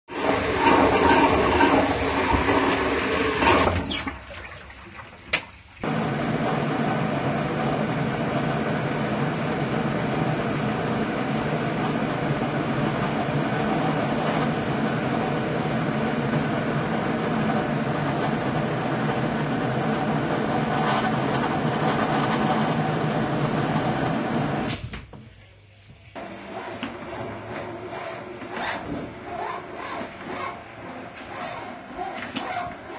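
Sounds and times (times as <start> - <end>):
water rushing down drain pipe: 0.1 - 24.7.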